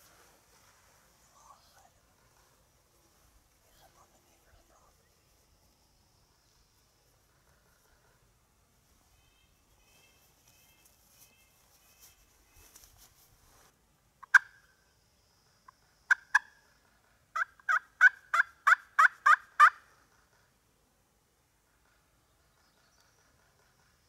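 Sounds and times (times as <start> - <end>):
turkey yelping: 14.2 - 14.6, 17.4 - 19.8.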